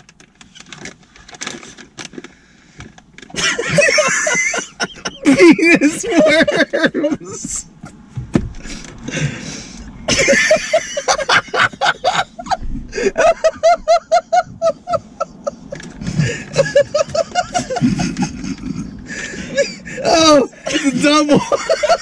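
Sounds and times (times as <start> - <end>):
people laughing hard: 3.4 - 7.6, 10.1 - 22.0.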